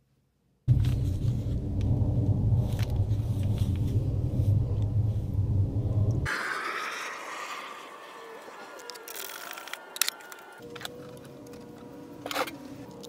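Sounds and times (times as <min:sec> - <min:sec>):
loud low rumble: 0:00.7 - 0:07.9
scattered clicks: 0:08.5 - 0:11.6.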